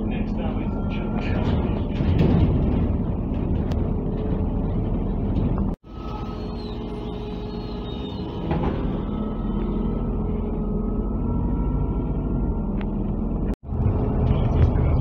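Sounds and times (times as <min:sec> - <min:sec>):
bus engine running: 0:00.0 - 0:15.0
bus doors shutting: 0:00.8 - 0:10.7.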